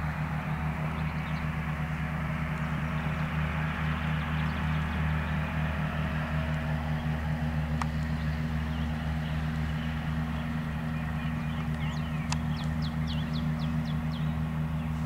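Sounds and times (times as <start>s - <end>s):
low mechanical hum: 0.0s - 15.0s
bird chirping: 7.8s - 15.0s.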